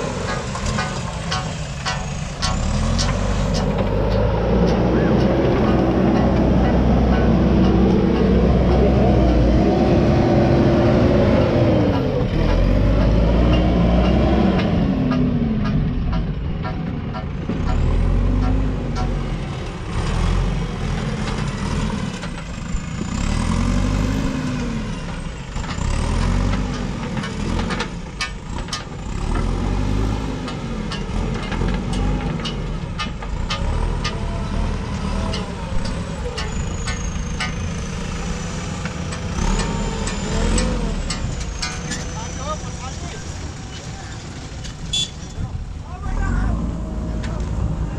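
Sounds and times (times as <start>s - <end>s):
diesel engine working under load: 0.0s - 47.9s
sharp knocks and clicks: 0.2s - 9.1s, 30.4s - 34.3s.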